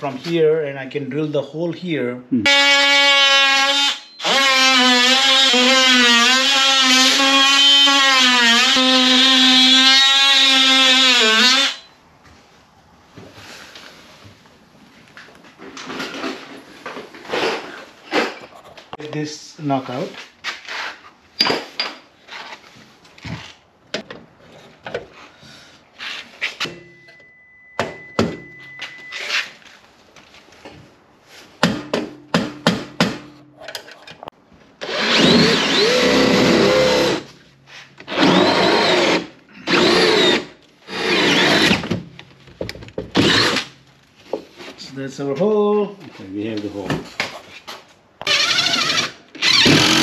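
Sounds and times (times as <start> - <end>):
cordless drill drilling: 2.5 - 11.9, 34.8 - 37.3, 38.1 - 41.8, 43.1 - 43.7, 48.2 - 50.0.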